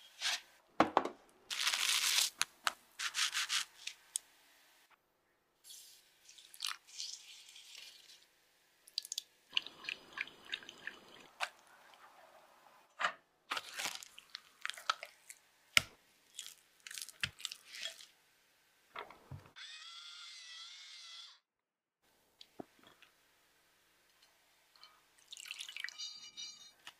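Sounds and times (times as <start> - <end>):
thick liquid pouring into bowl: 25.3 - 25.9.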